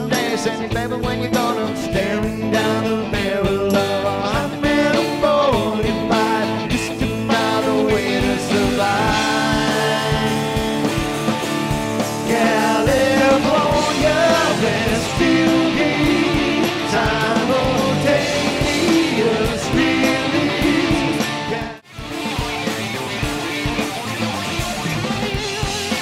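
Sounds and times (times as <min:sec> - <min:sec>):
person singing: 0:00.0 - 0:11.1, 0:12.2 - 0:21.9
rock band playing: 0:00.0 - 0:26.0.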